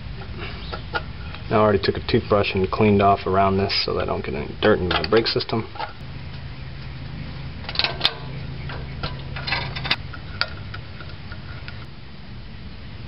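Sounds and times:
low steady hum: 0:00.0 - 0:13.0
light metallic clicks and rattles: 0:04.8 - 0:06.0, 0:07.6 - 0:11.9.

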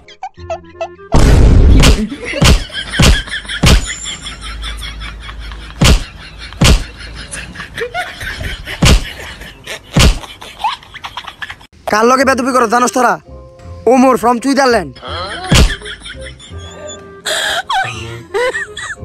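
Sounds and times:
hand slaps: 0:01.8 - 0:03.9, 0:05.8 - 0:06.8, 0:10.0 - 0:10.2, 0:15.5 - 0:15.8.

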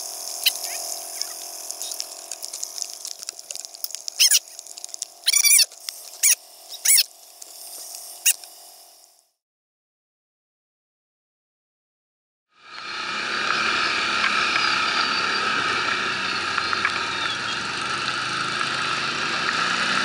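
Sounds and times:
atv engine idling: 0:00.0 - 0:07.7
wet hiss: 0:00.0 - 0:09.3
high squeals: 0:04.1 - 0:07.1, 0:12.7 - 0:18.3.

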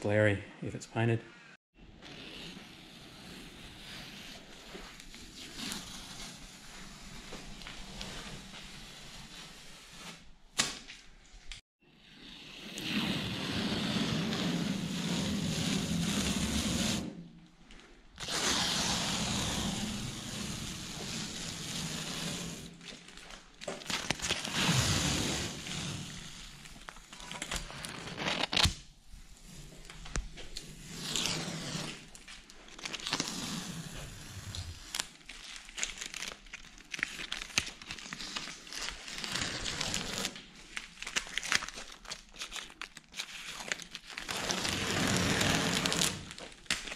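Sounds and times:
tape peeling off: 0:18.2 - 0:28.8, 0:29.5 - 0:46.9
tape crinkling in hand: 0:22.4 - 0:24.9, 0:29.8 - 0:33.6, 0:34.5 - 0:46.9.

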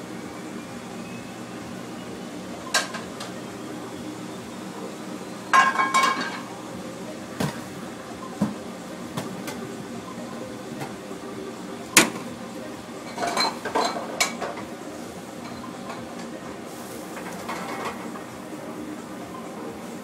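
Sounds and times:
steady background hum: 0:00.0 - 0:20.0
metal pans clanking on steel counter: 0:05.5 - 0:06.5, 0:13.1 - 0:14.6.

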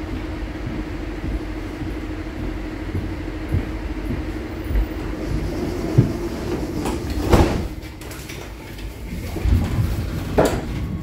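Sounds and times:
tram rumble and hum: 0:00.0 - 0:11.0.

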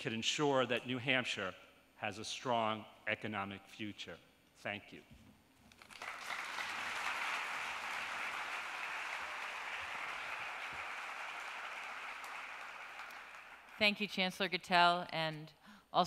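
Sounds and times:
audience applauding: 0:05.7 - 0:13.8.

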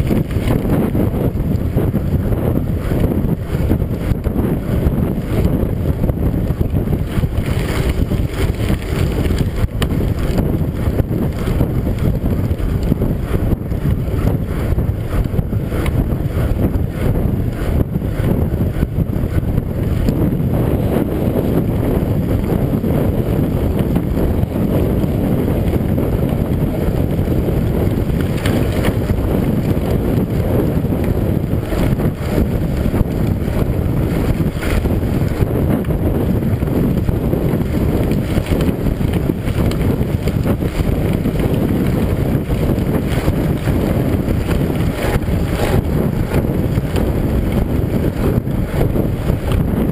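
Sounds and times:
bike ticks and rattles: 0:00.0 - 0:49.9
wind on microphone: 0:00.0 - 0:49.9
tyres on gravel: 0:06.8 - 0:12.8.

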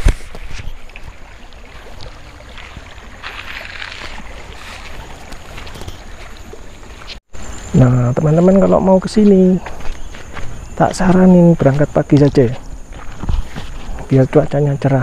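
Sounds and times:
footsteps on grass: 0:00.0 - 0:07.7, 0:08.3 - 0:14.4
wind rumbling on microphone: 0:08.7 - 0:15.0.

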